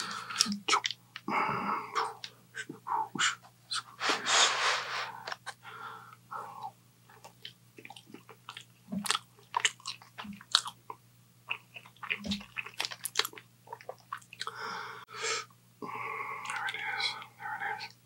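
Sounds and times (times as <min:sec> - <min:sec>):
man chewing crunchy food: 0:07.1 - 0:14.6.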